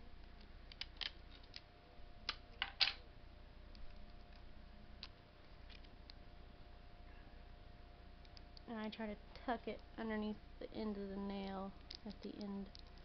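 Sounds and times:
faint steady hum: 0.0s - 13.0s
adhesive tape clicks and crackles: 0.2s - 2.4s.

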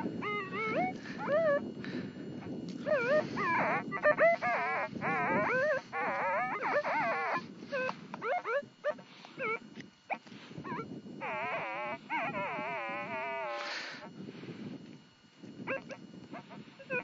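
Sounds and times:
metal detector warbling tones: 0.0s - 1.7s, 2.4s - 14.0s.

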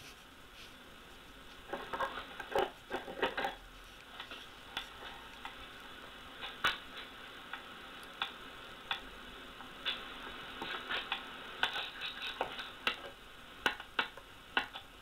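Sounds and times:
sharp clicks and ticks: 7.5s - 9.1s.

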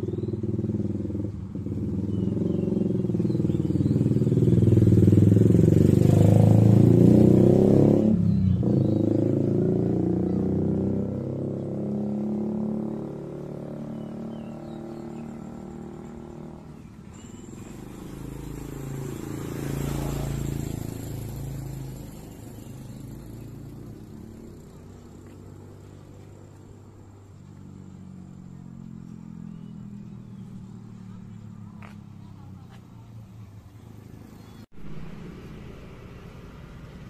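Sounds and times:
motorcycle engines passing: 0.0s - 37.0s.

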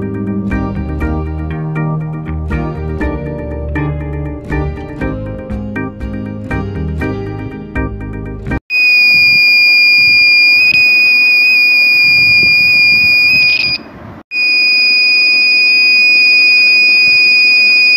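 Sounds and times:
high-pitched buzzer tone: 8.7s - 17.9s.

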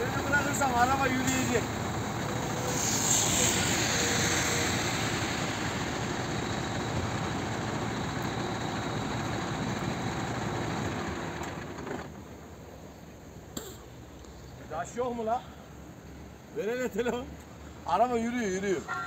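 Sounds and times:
diesel truck engine running: 0.0s - 12.7s.

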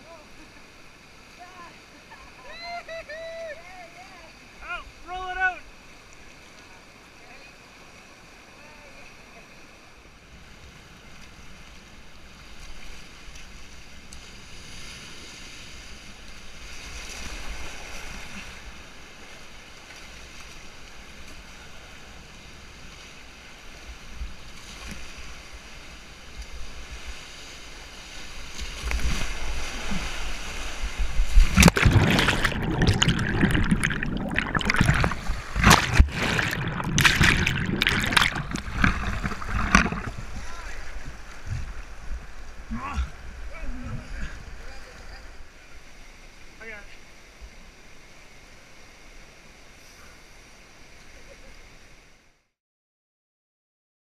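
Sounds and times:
rushing whitewater: 27.7s - 47.7s
water splashing on camera: 28.6s - 42.0s.

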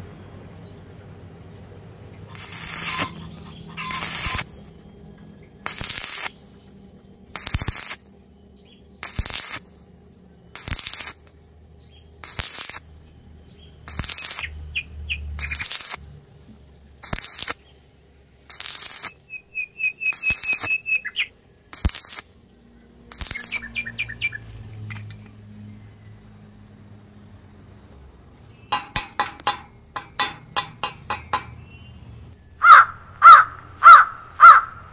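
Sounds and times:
welding arc crackling hiss: 2.3s - 4.9s, 5.5s - 8.2s, 9.0s - 9.9s, 10.5s - 11.4s, 12.2s - 13.0s, 13.8s - 24.4s, 28.7s - 31.5s
bird chirps: 2.7s - 4.4s, 13.0s - 15.6s, 19.1s - 21.4s, 23.3s - 24.6s, 31.0s - 34.8s.

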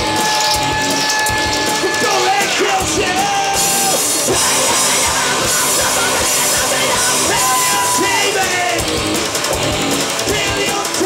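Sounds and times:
bass guitar: 0.0s - 11.0s
distorted electric guitar: 0.0s - 11.0s
electronic drum beat: 0.0s - 11.0s
man singing into microphone: 1.8s - 8.8s, 10.2s - 11.0s.

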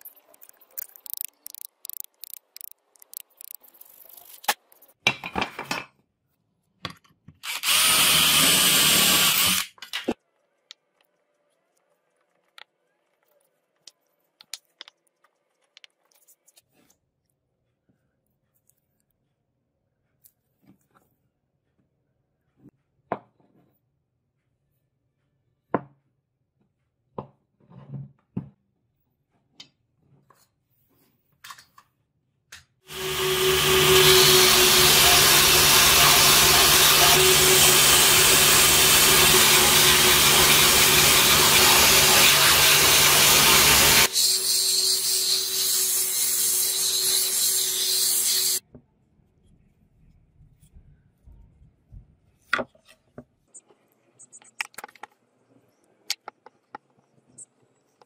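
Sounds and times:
belt sander grinding wood: 32.9s - 48.6s.

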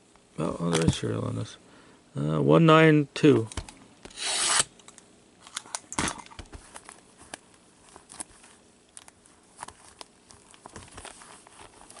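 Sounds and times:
box cutter slitting plastic wrap: 4.1s - 4.8s
box and wrapper rustling: 6.3s - 12.0s.

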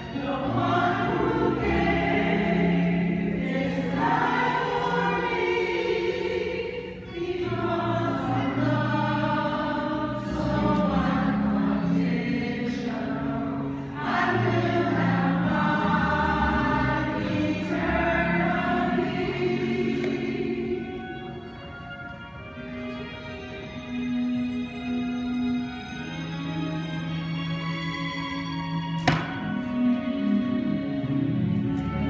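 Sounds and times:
mixed choir singing: 0.0s - 21.1s.

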